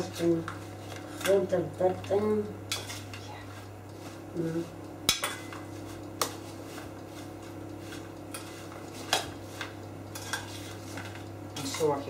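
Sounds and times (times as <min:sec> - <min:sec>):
utensils clinking against metal bowl: 0:00.0 - 0:03.6, 0:05.1 - 0:06.9, 0:07.9 - 0:12.0.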